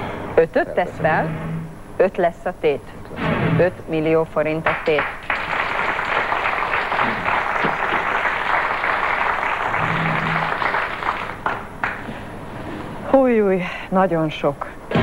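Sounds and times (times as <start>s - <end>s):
audience applauding: 4.9s - 12.1s.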